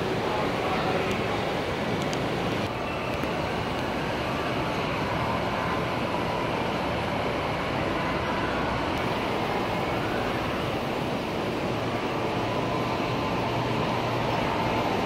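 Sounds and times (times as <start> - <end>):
faint steady whine: 0.0 - 15.0
low hum in hall: 0.0 - 15.0
model trains running: 0.0 - 15.0.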